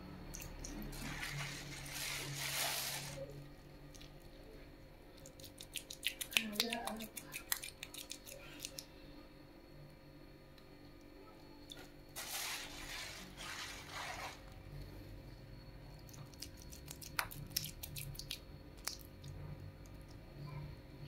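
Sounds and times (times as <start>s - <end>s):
wet squelching of meat dough: 16.1s - 19.4s.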